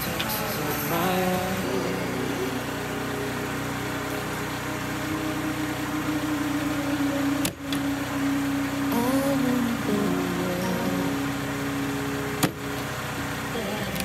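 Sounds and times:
motor humming: 0.0s - 14.0s.

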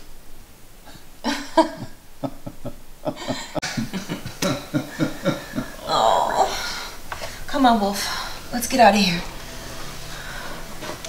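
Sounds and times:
person coughing: 4.4s - 6.5s.

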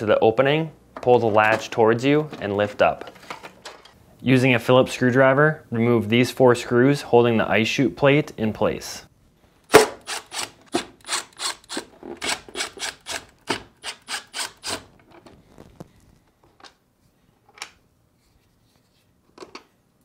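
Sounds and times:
screwdriver rasping on screws: 10.0s - 14.9s.

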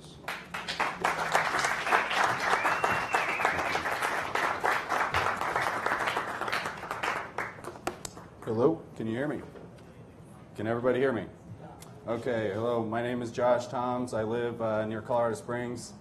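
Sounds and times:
audience applauding: 0.3s - 8.4s.

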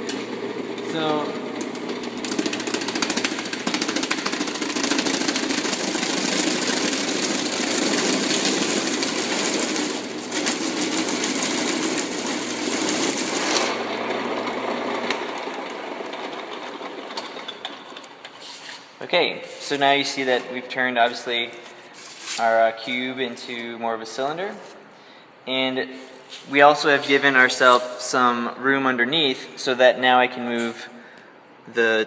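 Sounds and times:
lathe motor hum: 0.0s - 18.3s.

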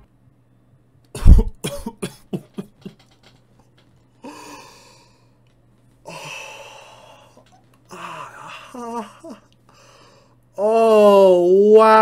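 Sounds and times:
man laughing: 1.2s - 3.2s, 7.4s - 9.5s
breathy intake: 4.2s - 5.4s, 6.0s - 10.4s.

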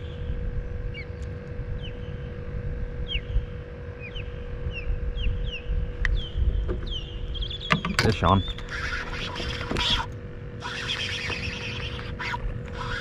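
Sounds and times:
wind buffeting microphone: 0.2s - 8.8s
bird chirping: 3.0s - 10.0s.

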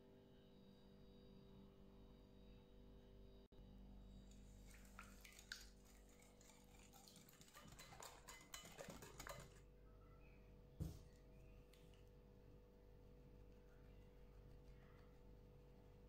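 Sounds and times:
whisk clicking against glass bowl: 6.4s - 9.6s.

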